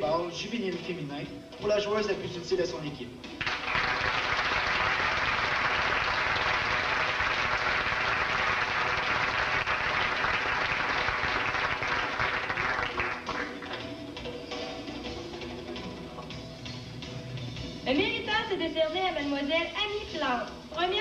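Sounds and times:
audience applauding: 3.4 - 13.9.

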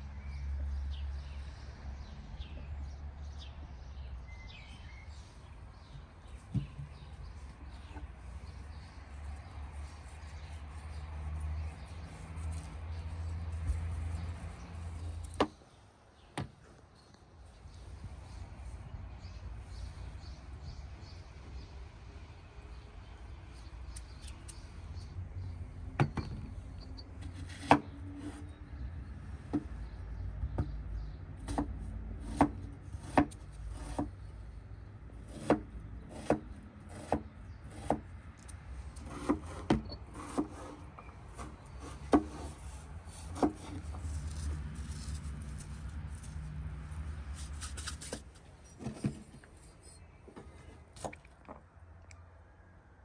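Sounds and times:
knife chopping on wooden board: 31.5 - 34.1, 35.3 - 38.1, 39.0 - 40.7, 41.4 - 42.5.

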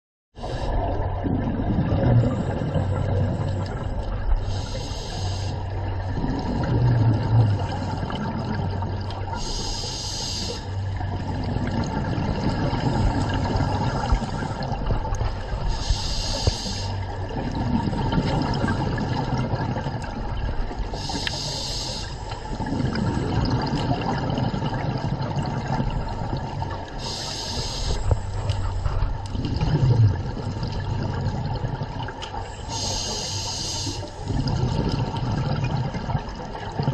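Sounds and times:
gurgle of exhaled bubbles: 0.4 - 36.9
regulator inhale hiss: 4.4 - 5.7, 9.3 - 10.8, 15.6 - 17.0, 20.9 - 22.4, 27.0 - 29.0, 32.6 - 34.3.

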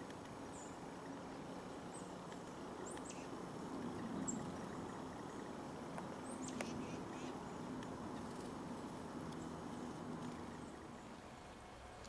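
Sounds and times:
faint low hum: 0.0 - 12.0
songbird chip calls: 2.8 - 11.2.

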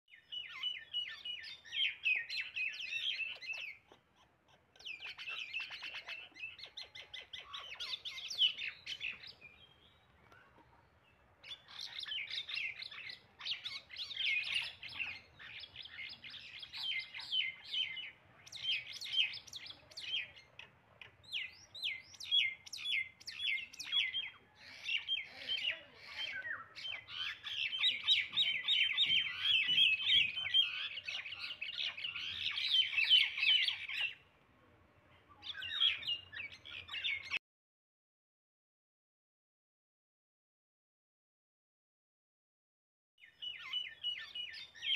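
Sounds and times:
mynas calling: 0.4 - 9.5, 11.4 - 34.2.

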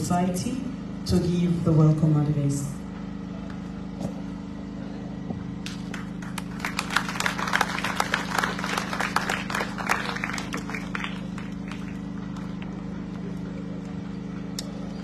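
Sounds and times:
steady low hum: 0.0 - 15.0
audience applauding: 5.6 - 14.0.

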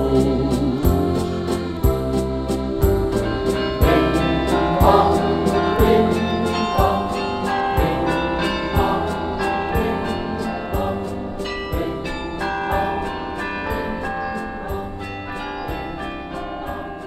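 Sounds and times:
folk band music with steady beat: 0.0 - 15.0.

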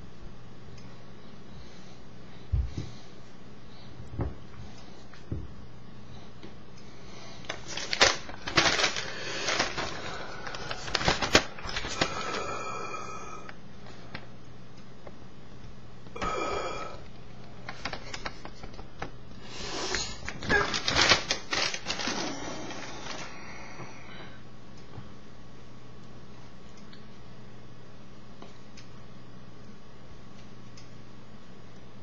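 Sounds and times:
paper rustling and crinkling: 7.4 - 12.5, 17.6 - 18.9, 19.9 - 23.3.

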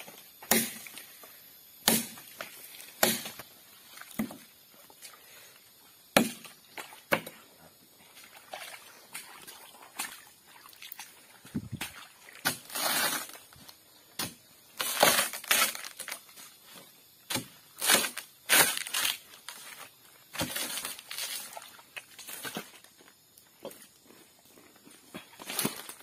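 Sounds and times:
blade chopping into palm trunk: 0.5 - 0.8, 1.8 - 2.2, 3.0 - 3.4, 6.2 - 6.5, 17.3 - 19.1.

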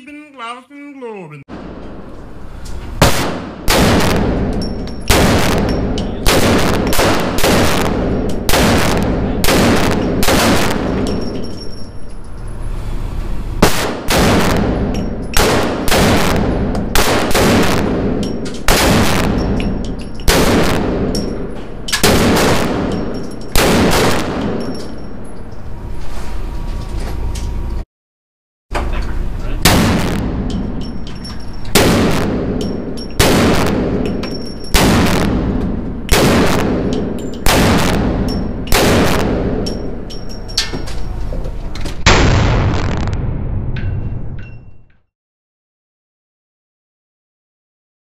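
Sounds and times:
pistol shots echoing indoors: 3.0 - 11.8, 13.6 - 25.4, 29.6 - 30.9, 31.7 - 40.8.

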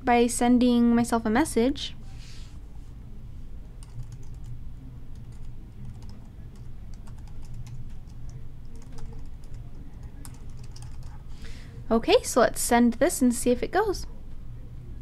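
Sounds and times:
low steady hum: 0.0 - 15.0
computer keyboard typing: 3.8 - 11.2.

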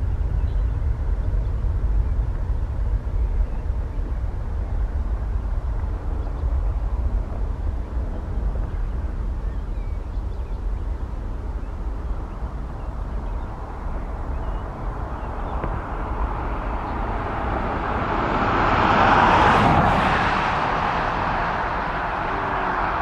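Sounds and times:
jet airliner taking off: 14.7 - 23.0.

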